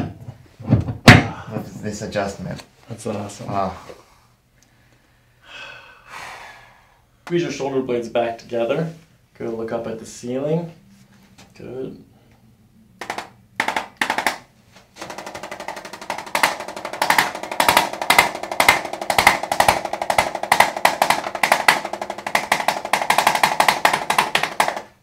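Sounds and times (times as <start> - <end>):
adjusting instrument rapid tapping: 13.0 - 14.4, 15.0 - 25.0.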